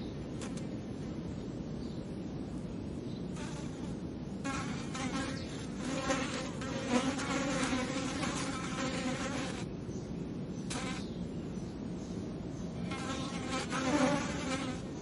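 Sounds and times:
low background noise: 0.0s - 15.0s
fly buzzing: 0.4s - 0.7s, 3.4s - 9.7s, 10.7s - 11.1s, 12.9s - 14.9s.

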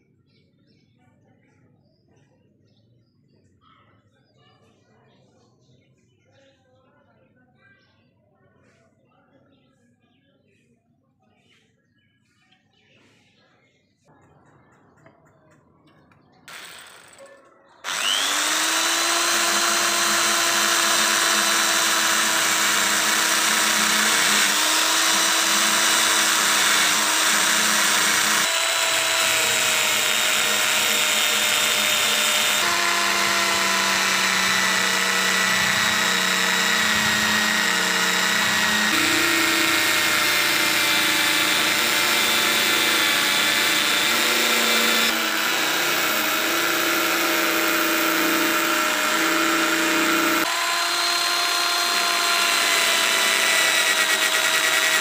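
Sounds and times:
power tool motor whine: 16.5s - 17.2s, 17.8s - 55.0s.

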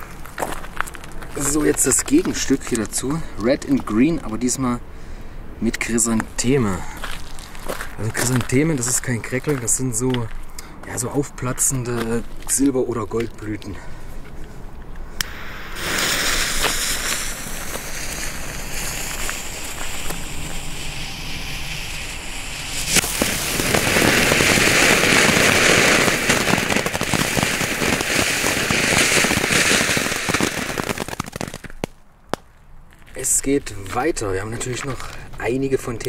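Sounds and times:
firework fountain hissing: 15.2s - 31.8s
small crackling pops: 22.9s - 35.3s.

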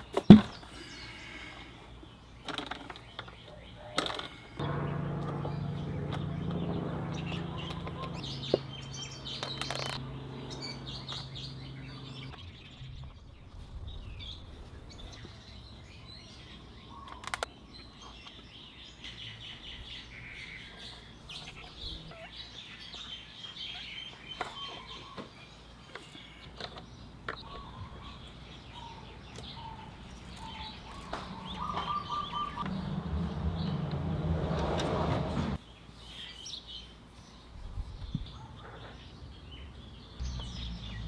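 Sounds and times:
small birds chirping: 0.0s - 34.2s, 35.6s - 41.0s
low drone: 4.4s - 16.2s.

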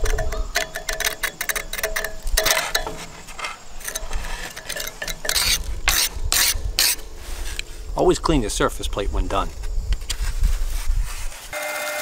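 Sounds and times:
metal tool scraping metal: 0.0s - 7.0s.

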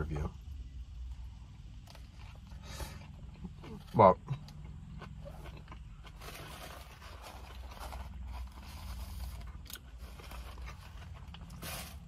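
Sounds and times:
paper wrapper crinkling: 6.0s - 12.0s.

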